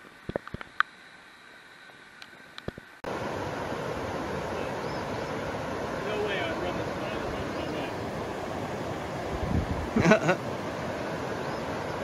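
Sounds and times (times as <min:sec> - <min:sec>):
river rapids rushing: 0:03.1 - 0:12.0.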